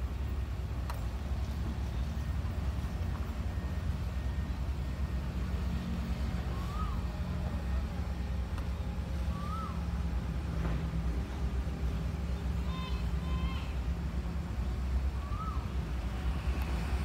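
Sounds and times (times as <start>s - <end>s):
train rumbling on rails: 0.0s - 17.0s.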